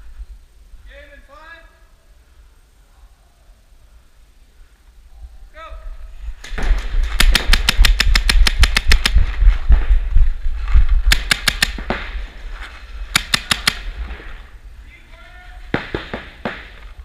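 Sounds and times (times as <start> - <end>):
paintball markers firing rapidly: 7.0 - 9.2, 11.1 - 12.0, 13.1 - 13.9.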